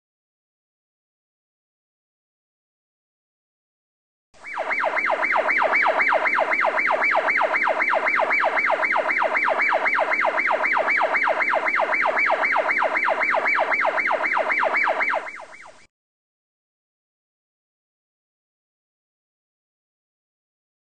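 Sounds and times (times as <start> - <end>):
electronic siren yelping: 4.4 - 15.9.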